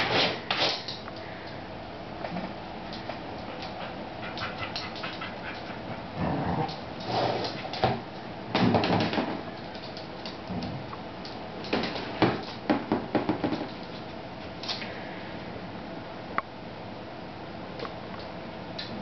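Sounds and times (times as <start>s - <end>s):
dog noises: 2.9s - 7.9s.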